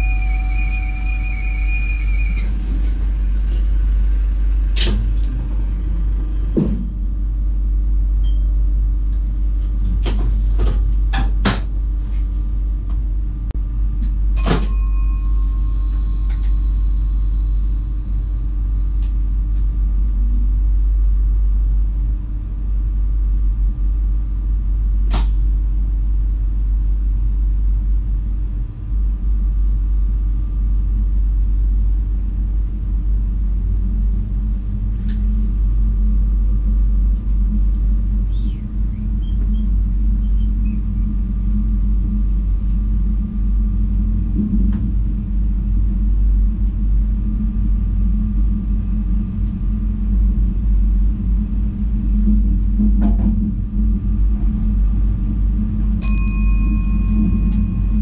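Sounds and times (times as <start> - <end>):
high steady tone: 0.0 - 3.4, 14.4 - 17.8, 56.0 - 58.0
train low rumble and hum: 0.0 - 58.0.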